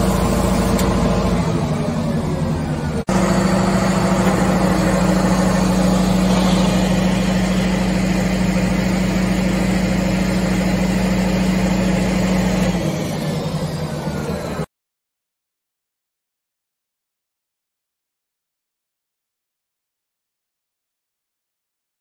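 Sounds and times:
engine and pump droning: 0.0 - 14.7.

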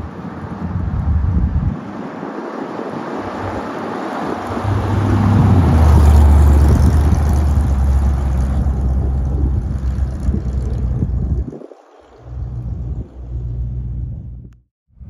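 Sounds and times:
car engine driving past: 3.1 - 14.5.

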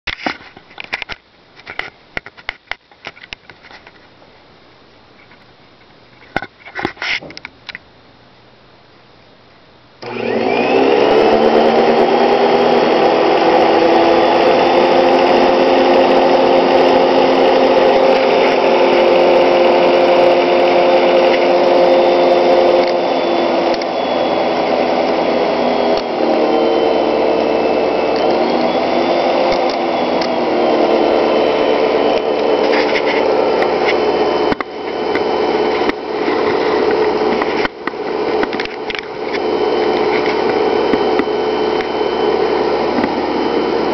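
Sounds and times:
vacuum cleaner motor whining: 10.0 - 43.9.

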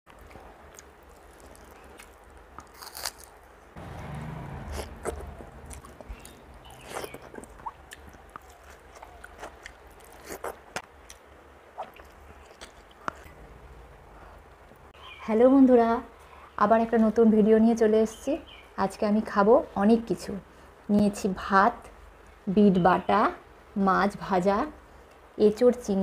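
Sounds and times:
person chewing: 0.1 - 3.5, 4.4 - 13.3
sharp mouth clicks and smacks: 4.8 - 11.2.

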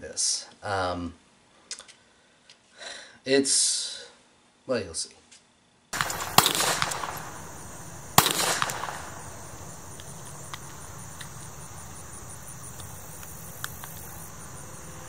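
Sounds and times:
pistol shots with echo: 6.0 - 12.1.

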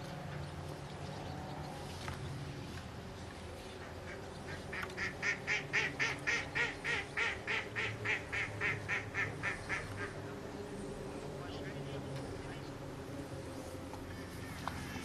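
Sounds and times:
waterbird quacking calls: 4.1 - 10.2.

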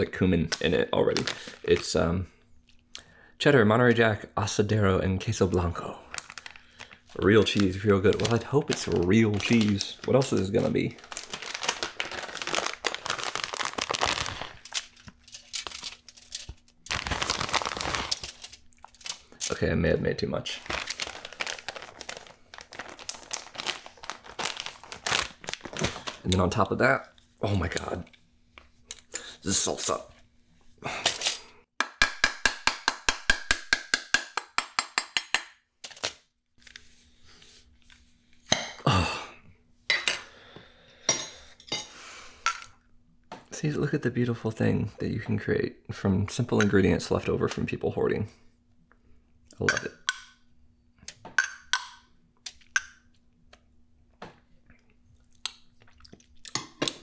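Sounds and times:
plastic bag crinkling: 1.0 - 2.0, 5.5 - 19.6, 20.4 - 26.9.

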